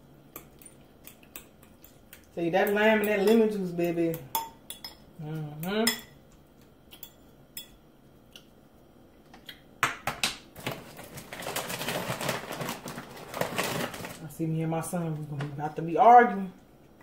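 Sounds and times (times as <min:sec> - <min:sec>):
crackly rustle: 0:10.6 - 0:14.5.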